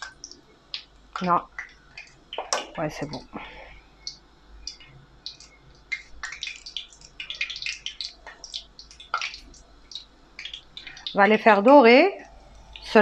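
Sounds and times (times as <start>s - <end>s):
oil crackling and spitting: 4.7s - 11.2s.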